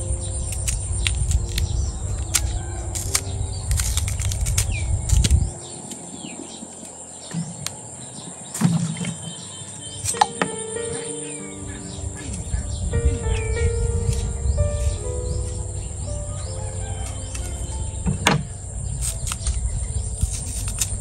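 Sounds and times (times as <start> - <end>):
low rumble: 0.0 - 8.5, 11.4 - 21.0
birds chirping: 0.0 - 21.0
high insect drone: 0.0 - 21.0
banana peel clicks and snaps: 0.4 - 6.0, 19.0 - 21.0.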